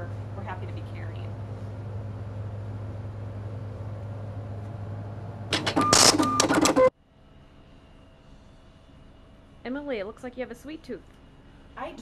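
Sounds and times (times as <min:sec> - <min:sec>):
steady low hum: 0:00.0 - 0:06.3
loud mechanical clattering: 0:05.5 - 0:06.9
short beeps: 0:05.8 - 0:06.9.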